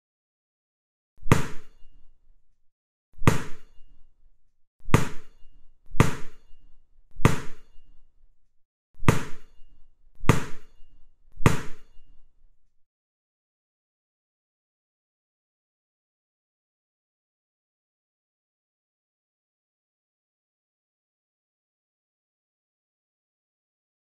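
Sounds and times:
bouncing ball thuds: 3.2s - 3.8s, 4.9s - 6.4s, 7.2s - 7.8s, 9.0s - 9.6s, 10.2s - 10.8s, 11.4s - 11.9s.

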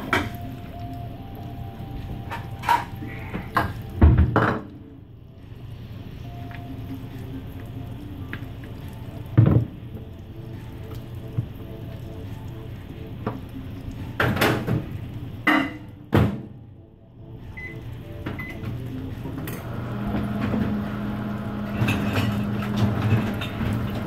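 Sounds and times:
microwave oven humming: 0.0s - 24.0s
electronic keypad beeps: 17.6s - 17.8s, 18.4s - 18.6s.

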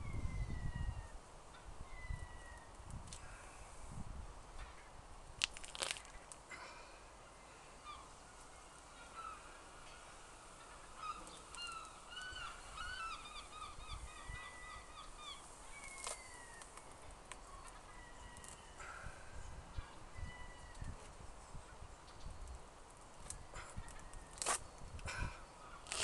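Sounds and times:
birds calling: 6.1s - 20.8s.

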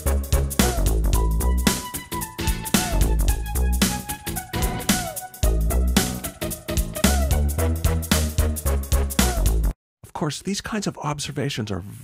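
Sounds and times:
heavy bass line: 0.0s - 9.7s
drum hits: 2.4s - 7.4s
falling guitar-like note: 4.5s - 5.2s.

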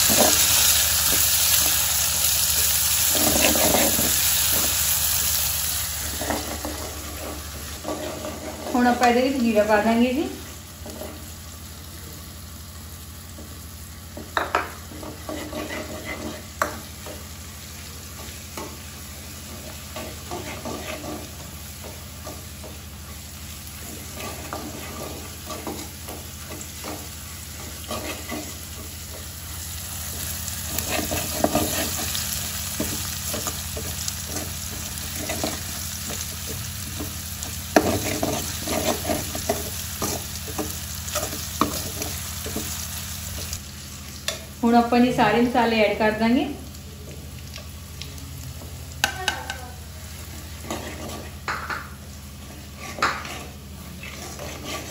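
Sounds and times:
onions sizzling in oil: 0.0s - 54.9s
metal ladle scraping pan: 6.1s - 9.0s, 14.4s - 16.8s, 19.5s - 21.4s, 23.8s - 28.9s, 30.7s - 35.6s, 50.4s - 51.6s, 52.4s - 54.9s.

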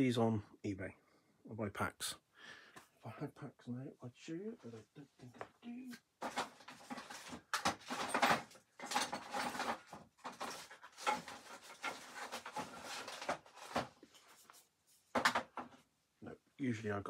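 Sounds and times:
items clattering and knocking: 6.2s - 15.9s.

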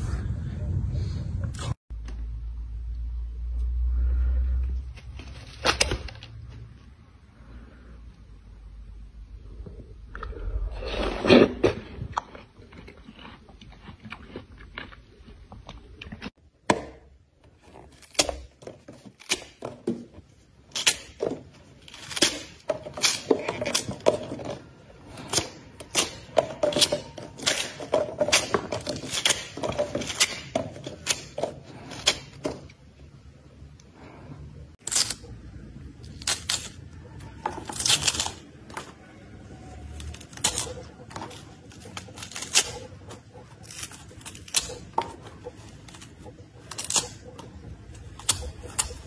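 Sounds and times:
watermelon flesh tearing: 17.5s - 32.7s, 34.8s - 49.0s
watermelon rind cracking: 17.6s - 32.8s, 34.8s - 39.1s, 39.7s - 49.0s.

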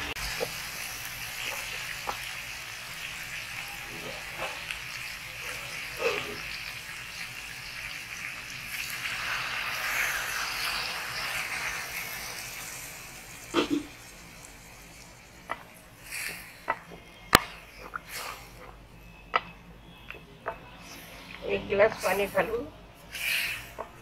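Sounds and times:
water pouring into a pot: 5.2s - 15.3s.

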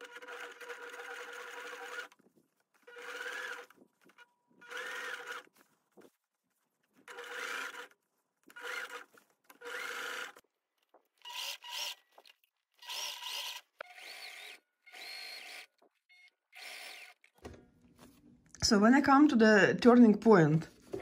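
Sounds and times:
sewing machine stitching: 0.0s - 5.6s, 7.0s - 10.4s, 11.2s - 17.5s.

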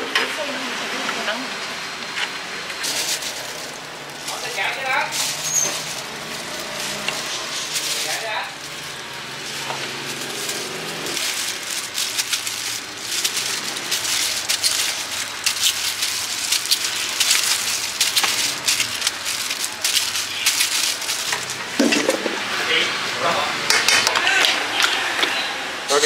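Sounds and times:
plastic rustling and crackling: 2.0s - 25.4s
fruit pieces landing in metal bowl: 21.4s - 22.6s.

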